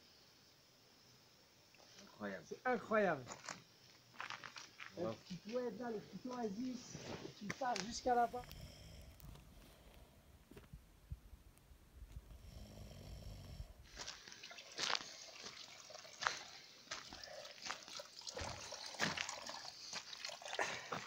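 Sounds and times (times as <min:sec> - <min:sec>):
person snoring: 0:08.3 - 0:09.3, 0:12.3 - 0:13.9
water trickling from tap: 0:14.2 - 0:21.0.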